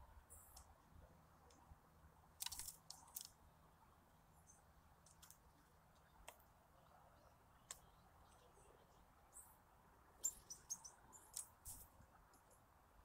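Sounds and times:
sharp clicks at bird feeder: 2.4s - 3.4s, 11.3s - 12.6s.

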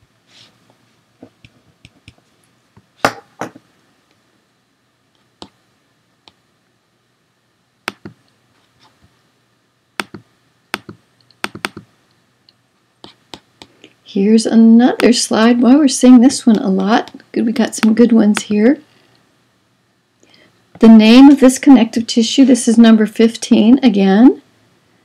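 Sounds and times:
keyboard taps: 7.9s - 8.2s, 10.0s - 11.9s
computer mouse clicks: 7.9s - 8.3s, 10.0s - 11.9s.

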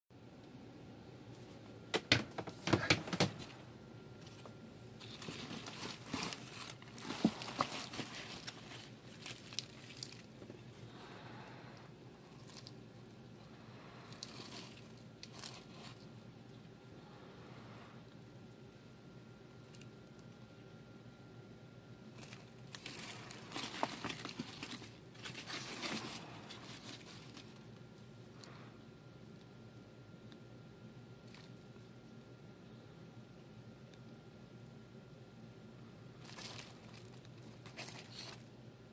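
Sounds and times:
cardboard rustling and scraping: 4.2s - 10.6s, 22.2s - 27.6s, 36.2s - 38.5s.

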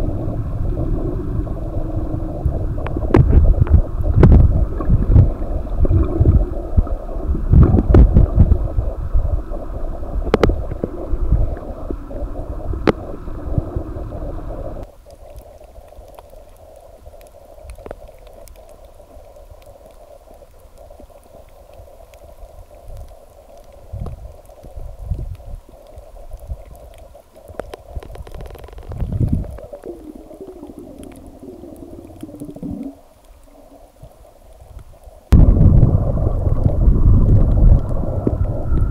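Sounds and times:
low rumbles: 0.0s - 14.9s, 27.9s - 33.5s, 35.3s - 38.9s
underwater water rush: 0.0s - 38.9s.

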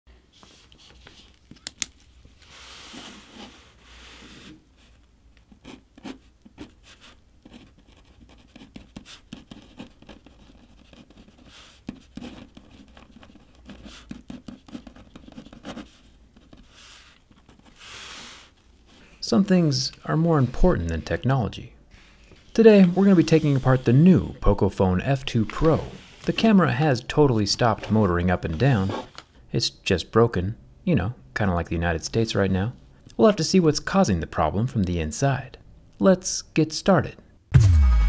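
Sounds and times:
pen scratching on paper: 5.6s - 18.5s.

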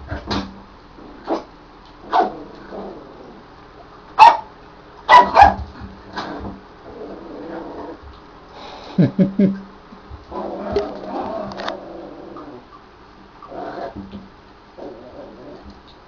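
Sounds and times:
puppy barking: 4.2s - 4.5s, 5.1s - 5.7s.

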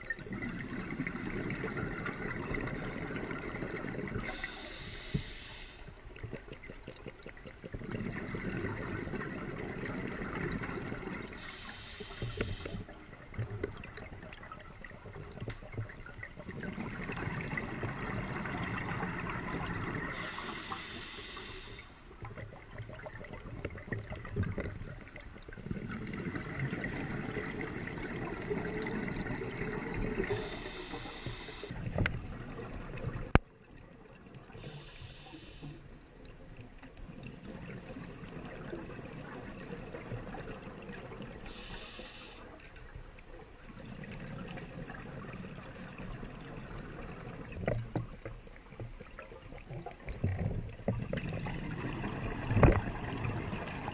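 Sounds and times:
bubbles gurgling underwater: 0.0s - 4.5s, 6.0s - 11.6s, 12.3s - 20.4s, 22.1s - 34.6s, 36.4s - 41.6s, 42.6s - 53.9s
regulator hissing: 11.4s - 12.8s.

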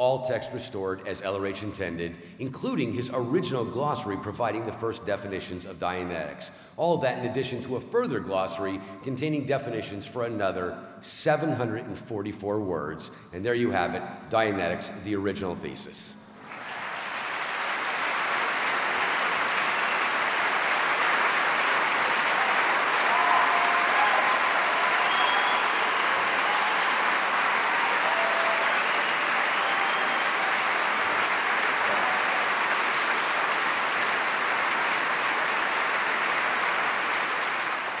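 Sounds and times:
large audience applauding: 16.4s - 38.0s.

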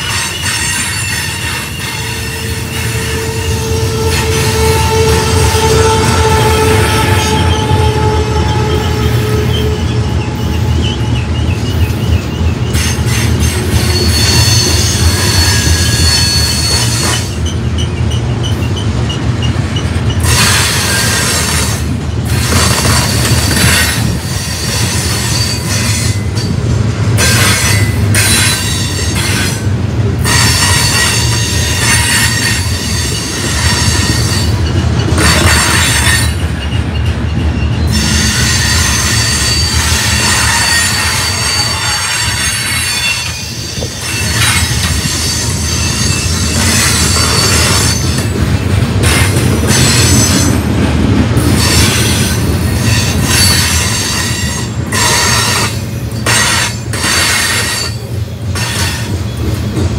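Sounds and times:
high-pitched wheel squeal: 0.0s - 21.6s, 30.3s - 48.3s
train wheels rumbling on rail: 0.0s - 59.9s.

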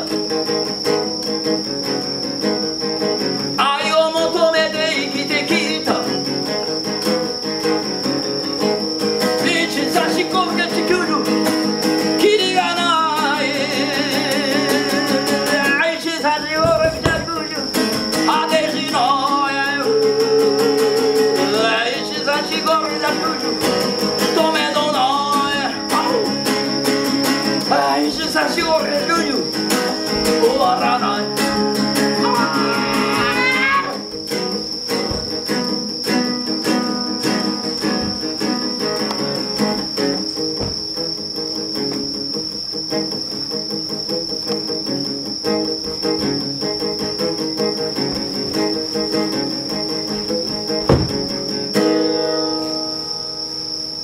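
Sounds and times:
acoustic guitar chords: 0.0s - 54.0s
crickets chirping: 0.0s - 54.0s
person singing: 3.6s - 6.2s, 12.2s - 23.6s, 24.2s - 26.4s, 30.2s - 34.0s.

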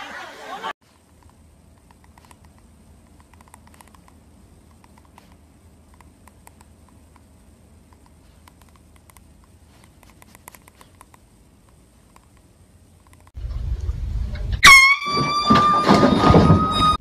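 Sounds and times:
low hum: 11.1s - 17.0s.

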